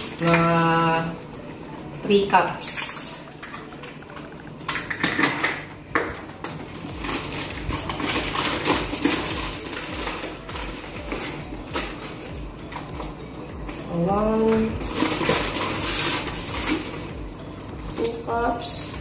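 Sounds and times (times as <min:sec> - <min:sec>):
sugar pouring rustle: 0:06.3 - 0:19.0.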